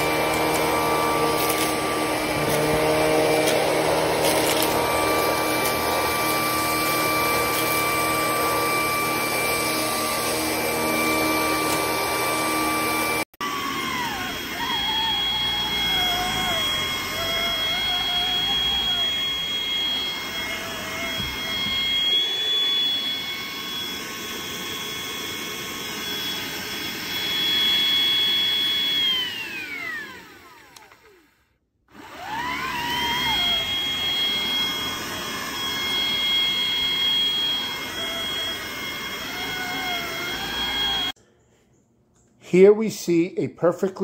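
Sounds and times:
vacuum cleaner running: 0:00.0 - 0:41.2.

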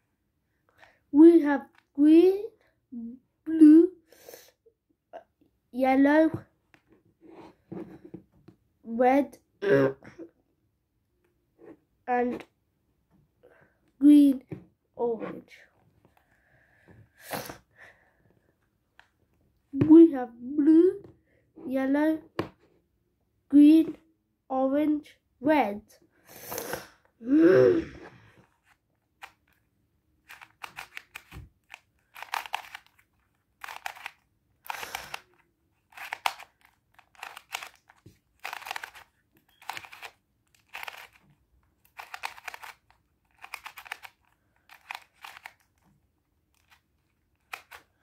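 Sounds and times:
plastic puzzle cube clicking turns: 0:28.6 - 0:29.6, 0:30.2 - 0:45.9, 0:46.5 - 0:48.0.

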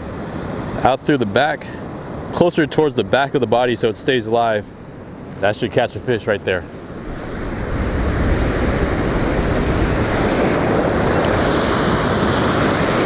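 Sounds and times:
ocean surf breaking on beach: 0:00.0 - 0:13.0
wind rumbling on microphone: 0:06.5 - 0:13.0.

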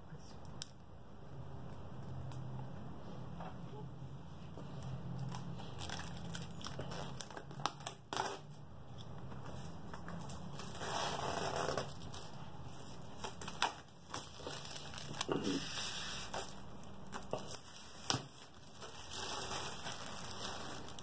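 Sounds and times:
plastic film crinkling: 0:05.1 - 0:08.5, 0:09.4 - 0:21.0.

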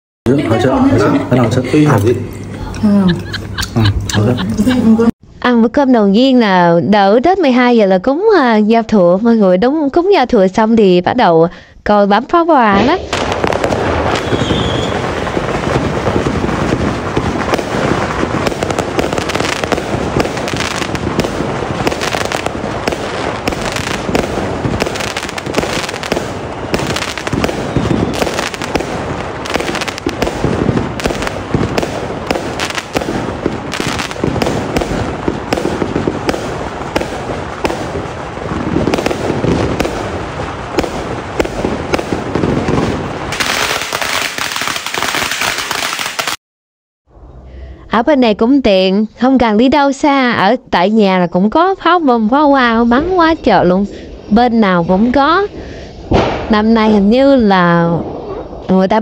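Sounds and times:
fireworks banging and crackling: 0:12.5 - 0:46.4, 0:54.6 - 0:59.0.

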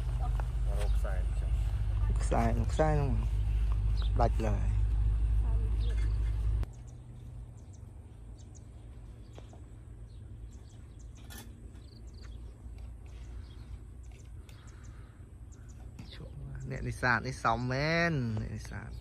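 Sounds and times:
low rumble: 0:00.0 - 0:09.2
faint bird chirps: 0:05.7 - 0:17.5.

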